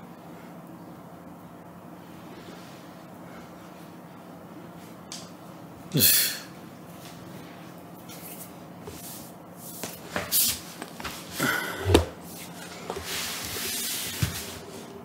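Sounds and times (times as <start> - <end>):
soft scuffs and knocks: 8.0 - 14.8.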